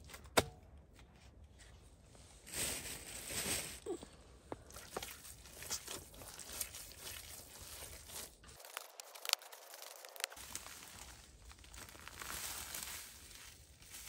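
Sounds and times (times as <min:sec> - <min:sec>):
hands kneading raw meat: 0:04.6 - 0:14.0.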